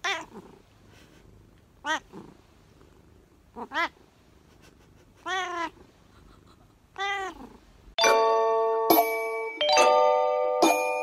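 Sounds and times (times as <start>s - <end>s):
cat meowing: 0.0s - 0.4s, 1.8s - 2.1s, 3.6s - 4.0s, 5.2s - 5.8s, 7.0s - 7.5s
bell-like chime: 8.0s - 11.0s.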